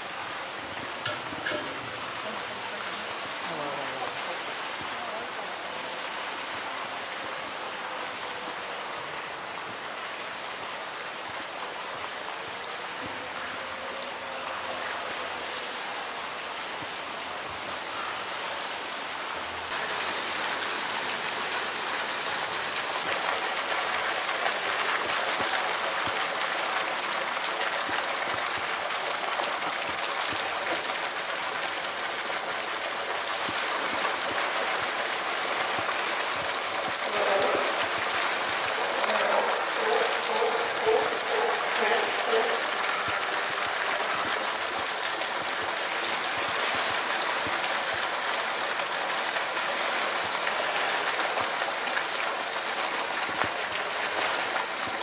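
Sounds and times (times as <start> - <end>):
water splashing into pool: 19.7 - 55.0.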